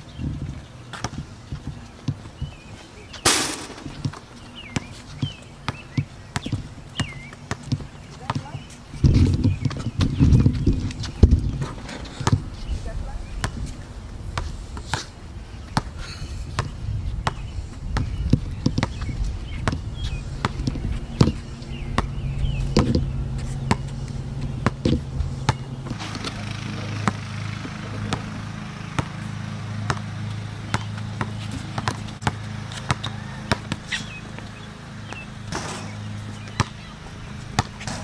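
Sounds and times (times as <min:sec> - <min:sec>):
basketball bouncing on a court: 0:03.3 - 0:10.7, 0:12.2 - 0:12.5, 0:16.5 - 0:17.4, 0:18.0 - 0:21.4, 0:22.0 - 0:29.2, 0:29.8 - 0:38.0
steady low hum: 0:12.4 - 0:33.1.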